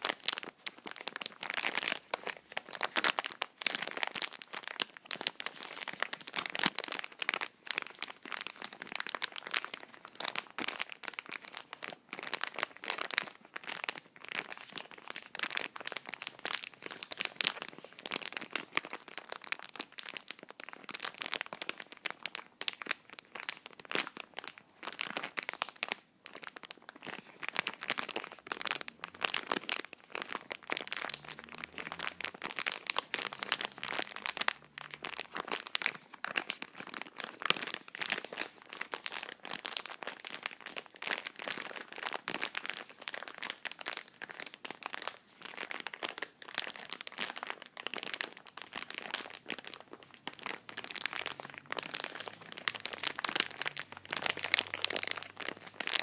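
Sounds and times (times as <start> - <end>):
packaging crinkling: 0.0 - 56.0.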